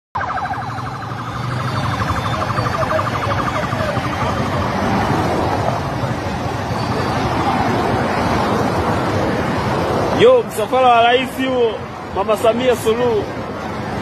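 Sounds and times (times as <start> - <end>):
siren warbling: 0.2 - 7.4
vehicles and wind rushing: 0.2 - 14.0.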